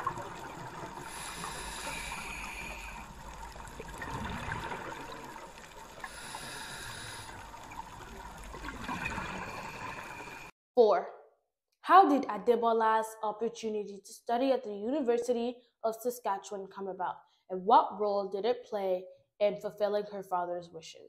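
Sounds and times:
muffled underwater water noise: 0.0s - 10.5s.

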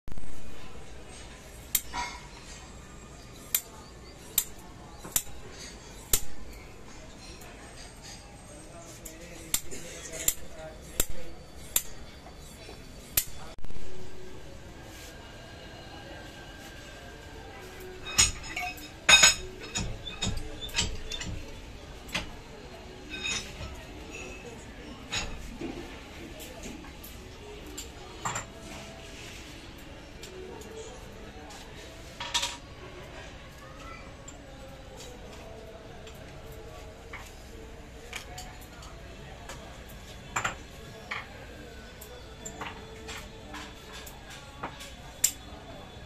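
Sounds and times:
metal tools clicking and clinking: 17.9s - 21.5s, 23.1s - 24.5s.

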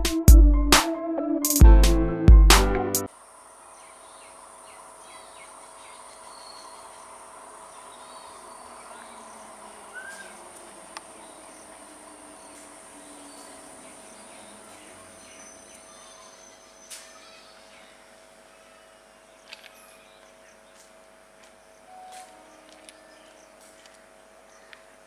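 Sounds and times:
insects buzzing: 3.1s - 25.0s
birds chirping: 3.3s - 25.0s.

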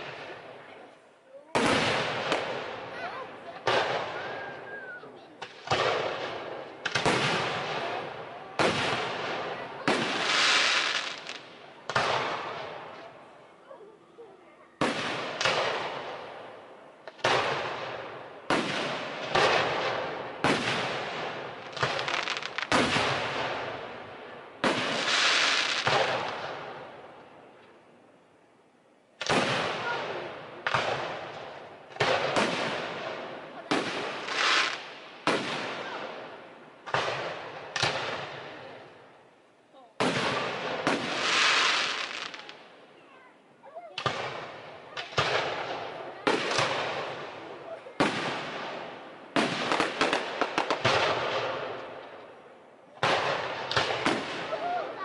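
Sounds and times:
firework shells booming: 1.5s - 3.0s, 3.6s - 4.8s, 5.4s - 13.0s, 14.8s - 27.2s, 29.2s - 39.0s, 40.0s - 42.6s, 44.0s - 52.4s, 53.0s - 55.0s
firework crackling hiss: 9.9s - 11.5s, 20.5s - 23.7s, 24.6s - 26.5s, 33.7s - 35.5s, 40.0s - 42.6s.

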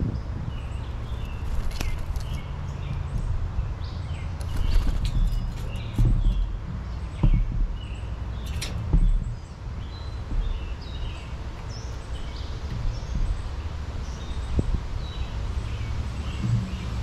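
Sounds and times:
small birds chirping: 0.0s - 17.0s
dull thumps: 5.0s - 15.3s
low rumble: 8.8s - 17.0s.

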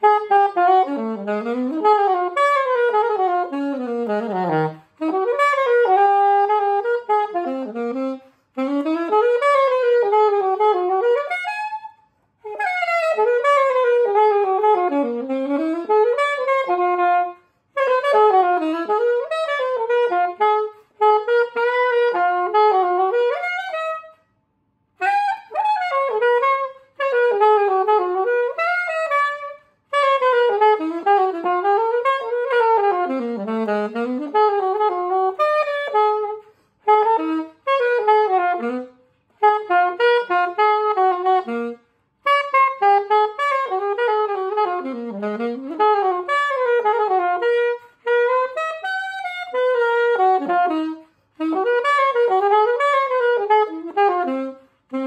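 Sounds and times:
alto saxophone playing jazz: 0.0s - 55.0s.

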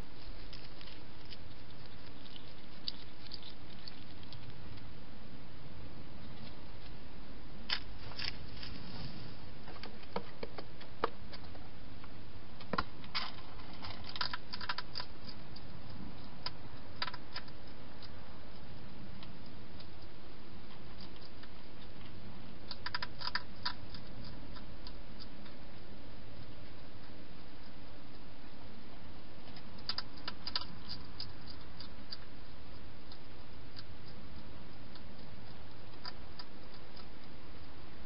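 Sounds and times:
hedgehog clicks and crunches: 0.0s - 4.9s, 7.7s - 8.7s, 12.6s - 28.2s, 29.4s - 37.7s
steady hiss: 0.0s - 9.8s.

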